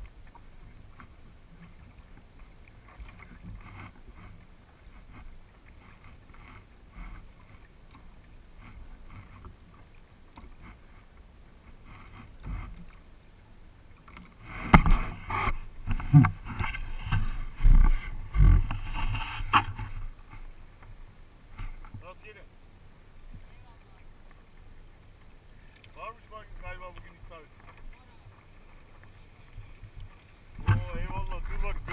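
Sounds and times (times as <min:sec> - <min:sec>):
ticks on kayak hull: 0:00.0 - 0:13.2, 0:13.8 - 0:22.4, 0:23.2 - 0:31.9
water lapping: 0:00.0 - 0:31.9
knocks and rubbing of pole mount: 0:14.6 - 0:20.4.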